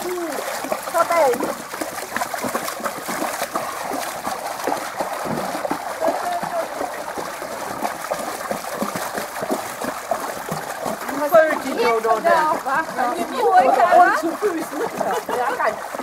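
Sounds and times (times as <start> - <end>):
water splashing and trickling: 0.0 - 16.0
faint voices: 6.0 - 7.0.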